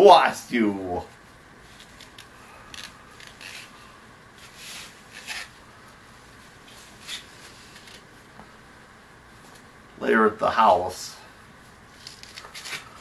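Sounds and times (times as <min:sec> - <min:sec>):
soft rustles and scrapes: 0:01.0 - 0:05.6, 0:06.2 - 0:08.2.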